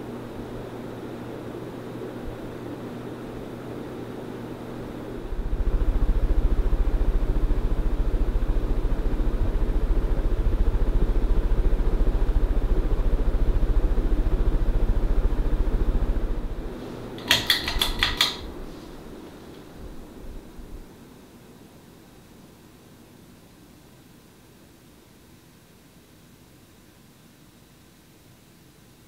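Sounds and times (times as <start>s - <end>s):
ceiling fan motor humming: 0.0s - 29.0s
sharp clicks: 17.2s - 18.5s.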